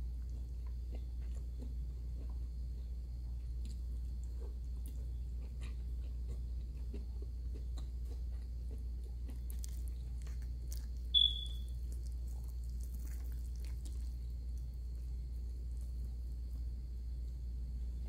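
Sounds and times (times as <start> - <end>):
steady low hum: 0.0 - 18.0
chewing: 0.2 - 16.7
short high-pitched beep: 11.2 - 11.7.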